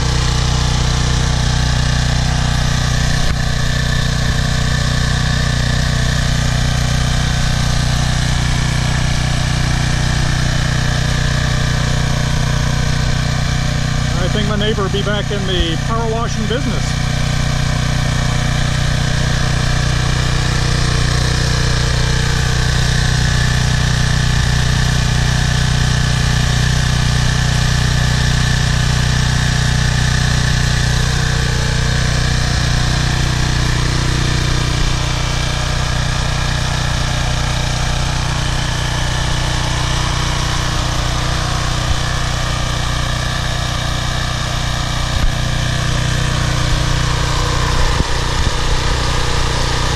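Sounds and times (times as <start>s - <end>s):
small engine running steadily: 0.0s - 49.9s.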